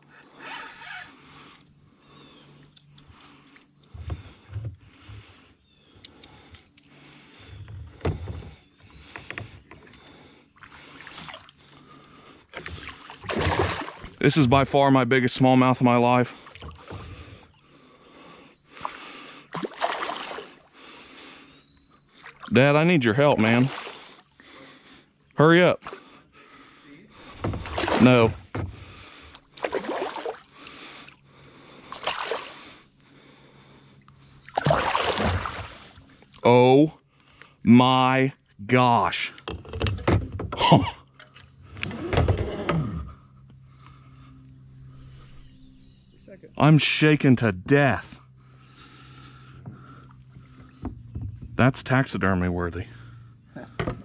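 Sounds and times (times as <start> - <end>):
knocks and bumps on a kayak: 7.6 - 9.9, 27.2 - 29.0, 39.4 - 41.0, 49.4 - 51.9, 53.6 - 54.0
water splashing against kayak: 7.8 - 14.8, 18.7 - 20.8, 23.3 - 24.3, 27.1 - 31.2, 31.8 - 32.9, 34.4 - 36.5.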